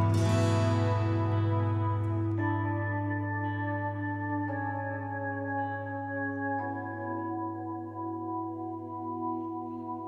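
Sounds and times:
ambient music with held chord: 0:00.0 - 0:10.0.

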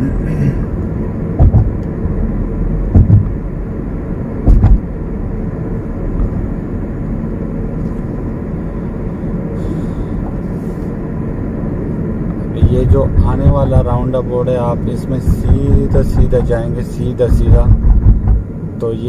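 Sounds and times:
car cabin road and engine noise: 0:00.0 - 0:19.0
short low thumps: 0:01.4 - 0:02.2, 0:02.8 - 0:03.4, 0:04.4 - 0:04.9, 0:15.3 - 0:16.6, 0:17.3 - 0:18.5.

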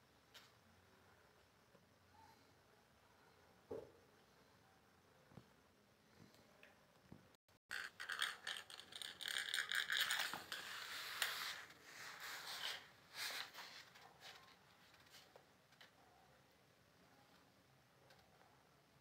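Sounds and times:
plastic bangle scraping on concrete: 0:07.7 - 0:13.9.

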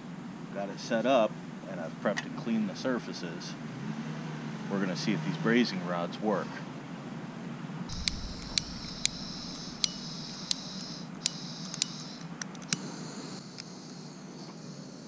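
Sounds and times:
gas hissing from nozzle: 0:07.9 - 0:12.2
gas torch igniter clicking: 0:07.9 - 0:12.9.

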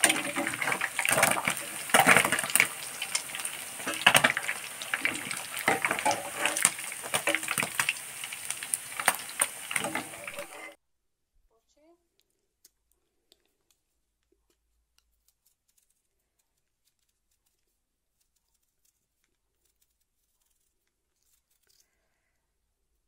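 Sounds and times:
knife peeling potato: 0:12.2 - 0:23.0.

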